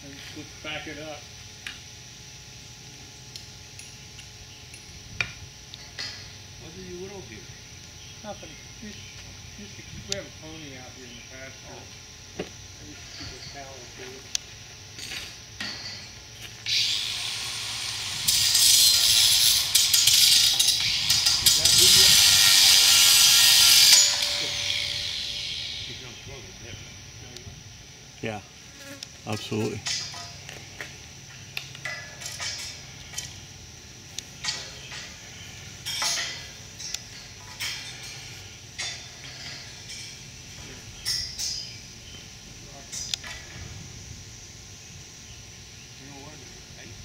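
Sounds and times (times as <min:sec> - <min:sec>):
steady hiss: 0:00.0 - 0:47.0
steady low hum: 0:00.0 - 0:47.0.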